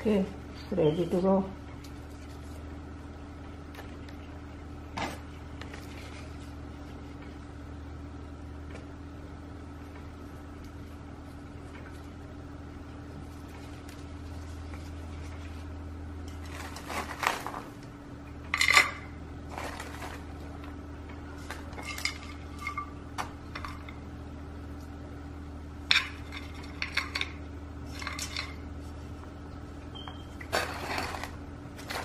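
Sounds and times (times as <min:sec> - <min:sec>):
clay pot clinking and scraping: 0:30.4 - 0:32.0.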